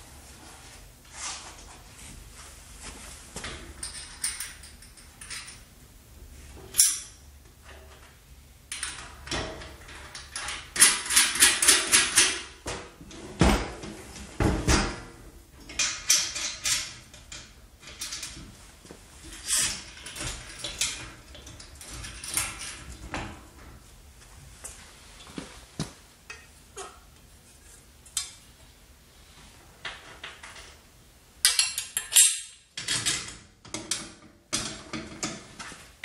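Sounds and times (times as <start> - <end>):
metal parts knocking and clinking: 3.8 - 5.6, 31.4 - 35.4.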